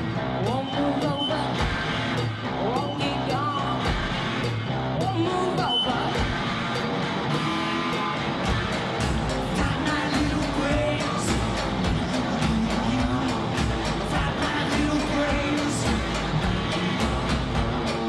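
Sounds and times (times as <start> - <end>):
electric guitar bending notes: 0.0 - 18.0
drum machine beat: 0.5 - 18.0.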